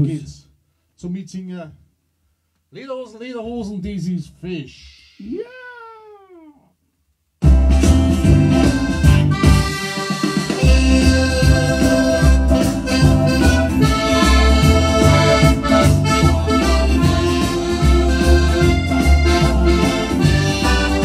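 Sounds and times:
pulsing bass beat: 7.4s - 9.7s, 10.6s - 21.0s
electric guitar: 7.5s - 21.0s
piano accordion: 7.5s - 21.0s.

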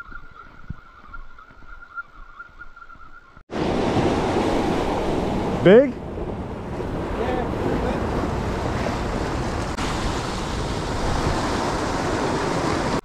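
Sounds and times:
wind buffeting microphone: 0.0s - 13.0s
sea swell washing over rocks: 3.5s - 13.0s.

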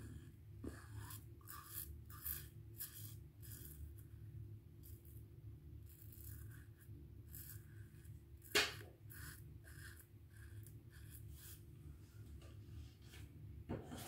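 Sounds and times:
razor scraping stubble: 5.8s - 11.6s.

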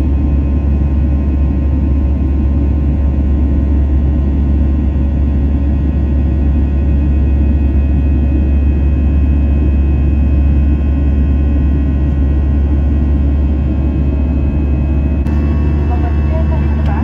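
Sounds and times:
jet engine rumble and airflow: 0.0s - 17.0s
faint steady tones: 15.2s - 17.0s.

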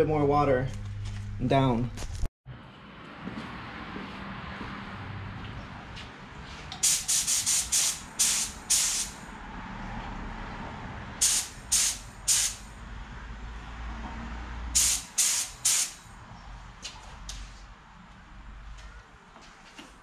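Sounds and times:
paint spray gun hissing bursts: 6.8s - 9.2s, 11.2s - 12.7s, 14.8s - 16.0s.

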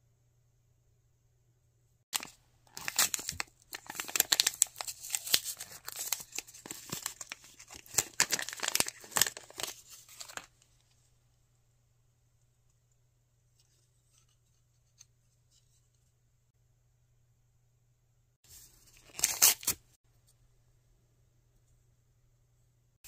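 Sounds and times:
plastic wrapper tearing and crinkling: 2.2s - 10.5s, 19.0s - 19.8s.

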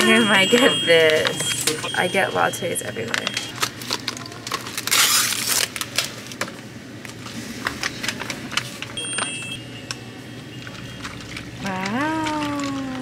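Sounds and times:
foil seal tearing: 3.5s - 6.4s
ice cubes and plastic clicking: 10.7s - 13.0s.

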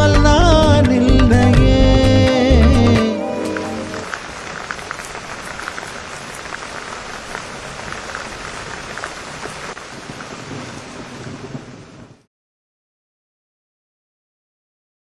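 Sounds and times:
heavy rain falling: 1.8s - 12.3s.

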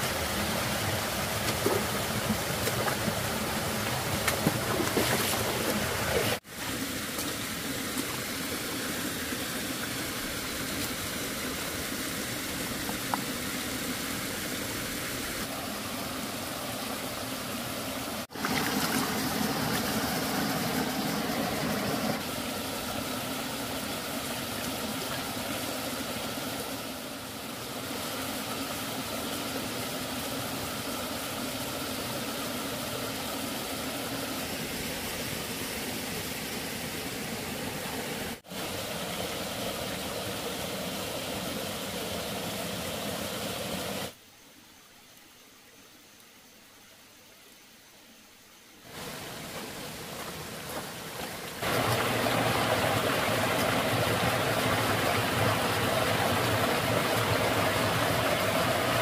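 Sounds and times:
stream running over rocks: 0.0s - 59.0s
water sloshing through basket: 0.8s - 6.4s.

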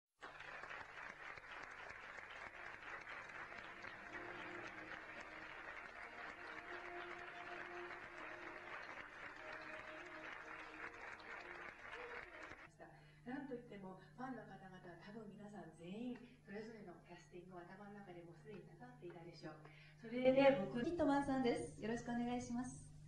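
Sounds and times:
audience applause: 0.2s - 12.7s.

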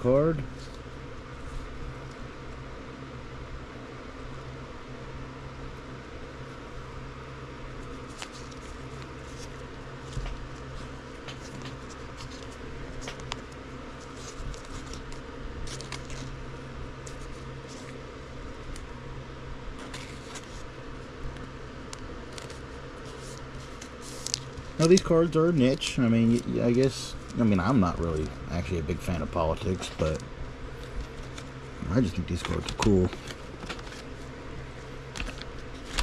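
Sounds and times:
low room hum: 0.0s - 36.0s
card sleeves rustling and clicking: 7.8s - 16.4s, 19.7s - 20.7s, 21.9s - 25.1s, 30.8s - 36.0s.

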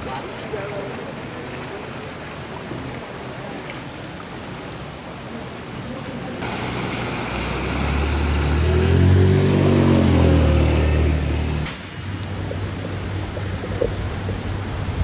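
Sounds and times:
floodwater rushing along street: 0.0s - 15.0s
motor scooter engine: 6.4s - 11.7s.

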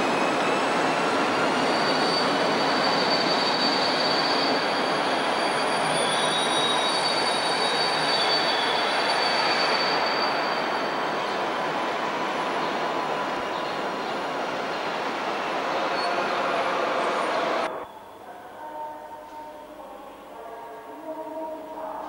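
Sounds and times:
steel wheels squealing: 0.0s - 11.7s, 15.7s - 18.2s.

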